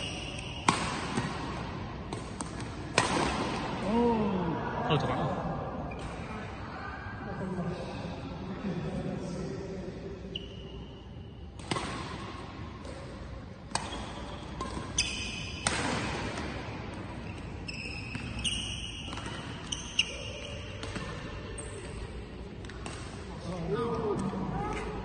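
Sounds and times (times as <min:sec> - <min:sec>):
rackets striking shuttlecock: 0:00.1 - 0:03.8, 0:11.6 - 0:17.1, 0:18.0 - 0:23.3
shoes squeaking on court: 0:17.2 - 0:20.8.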